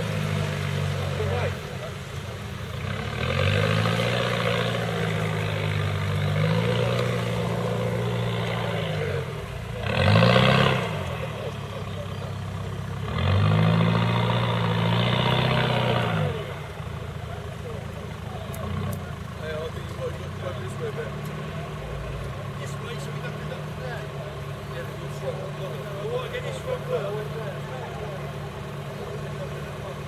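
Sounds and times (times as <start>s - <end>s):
off-road engine revving: 0.0s - 30.0s.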